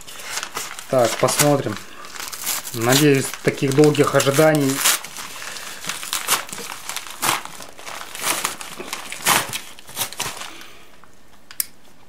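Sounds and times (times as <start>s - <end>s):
knife cutting paper envelope: 0.0s - 10.6s
envelope crinkling: 0.0s - 11.4s.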